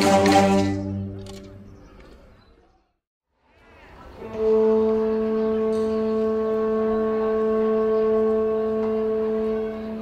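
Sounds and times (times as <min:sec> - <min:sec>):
wind instruments holding a note: 0:04.2 - 0:10.0.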